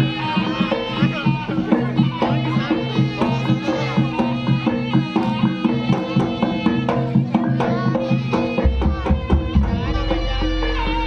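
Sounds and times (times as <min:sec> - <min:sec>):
drums beating: 0:00.0 - 0:11.0
reed pipe melody: 0:00.0 - 0:11.0.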